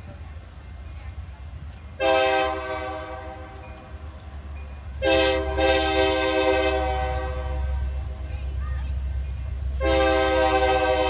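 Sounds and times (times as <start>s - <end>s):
low train rumble: 0.0s - 11.0s
locomotive air horn: 2.0s - 3.6s, 5.0s - 8.2s, 9.8s - 11.0s.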